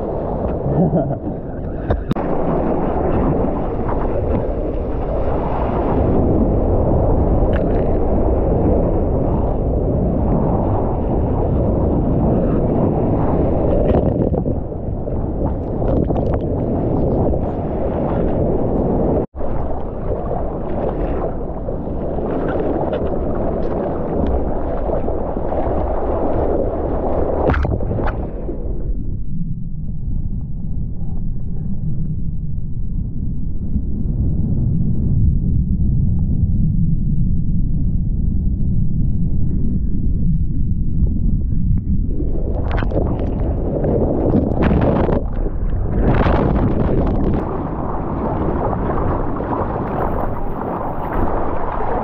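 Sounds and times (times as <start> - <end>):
wind on microphone: 0.0 - 52.0.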